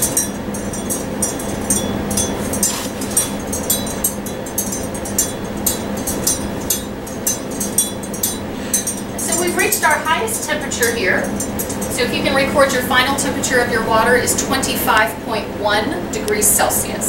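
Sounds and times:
metal stirrer clinking in water: 0.0s - 12.0s
steady low hum: 0.0s - 17.0s.

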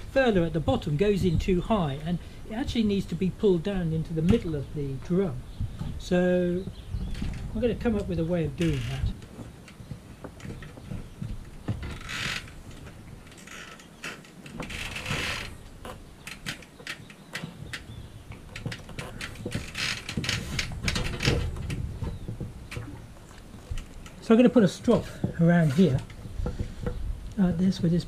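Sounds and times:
small clicks and knocks of fittings: 6.7s - 24.3s, 24.9s - 27.4s
rope rustling: 8.5s - 27.4s.

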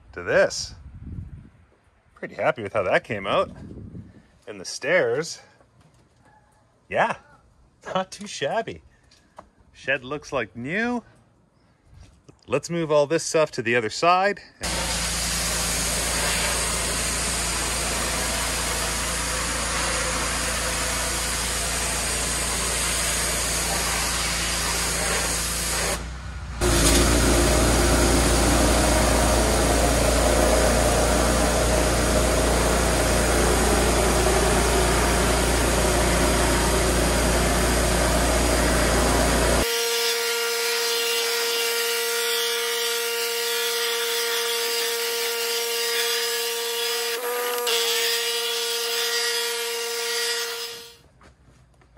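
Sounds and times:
steady machine whine: 14.6s - 39.9s
pressure washer spraying wood: 14.6s - 51.0s.

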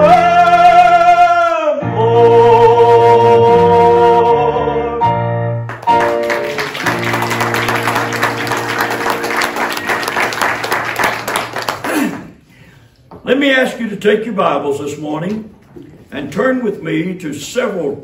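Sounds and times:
congregation applauding: 5.6s - 12.5s.

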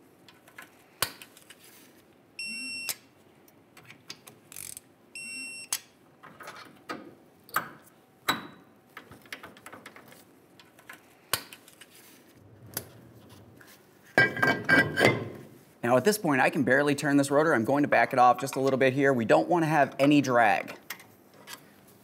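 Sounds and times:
hand tools clanking on metal: 14.2s - 15.4s.

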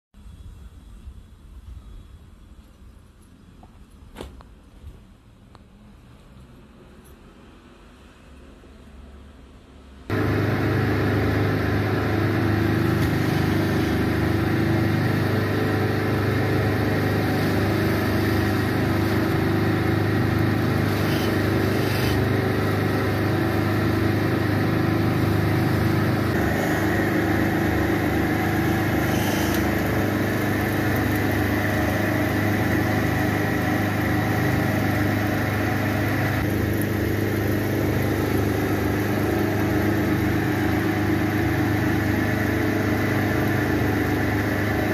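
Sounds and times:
carding machine humming: 10.1s - 44.9s.

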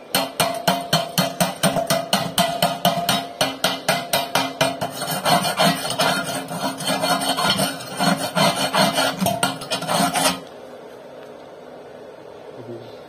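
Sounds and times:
steel plate ringing: 0.1s - 10.4s
steel bar scraping on weld beads: 0.2s - 10.5s.

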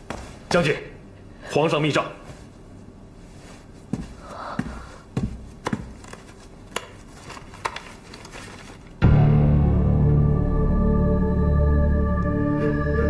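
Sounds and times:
soft irregular taps: 3.9s - 7.0s.

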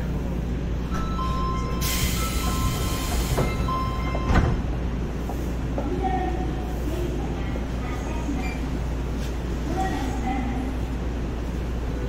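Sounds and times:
subway train equipment humming: 0.0s - 12.0s
air hiss: 1.8s - 3.6s.

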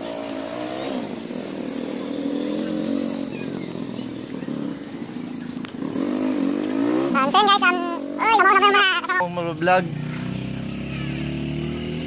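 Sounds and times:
small engine running: 6.1s - 12.0s.

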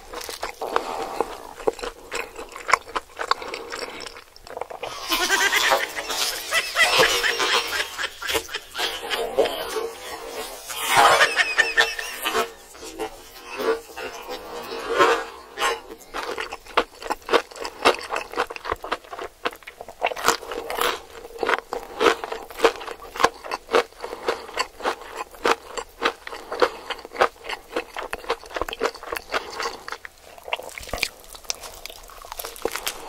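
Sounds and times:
person chewing crunchy food: 0.0s - 33.0s.

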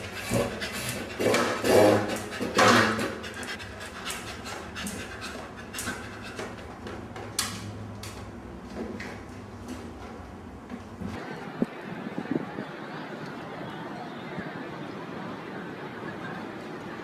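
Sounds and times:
dog panting: 0.0s - 6.9s.

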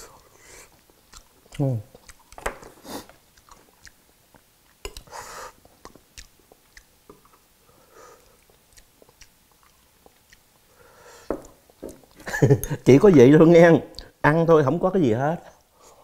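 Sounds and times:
man chewing: 0.0s - 12.8s.

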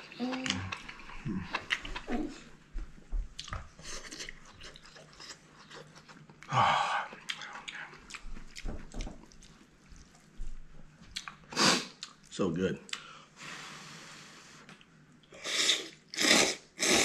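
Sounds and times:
chewing with wet smacks: 3.4s - 6.5s, 7.1s - 10.5s, 11.1s - 12.3s.

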